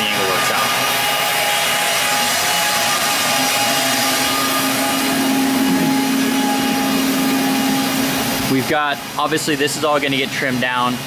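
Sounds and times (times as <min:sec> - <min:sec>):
motor hissing and humming: 0:00.0 - 0:09.2
low steady tone: 0:03.4 - 0:08.5.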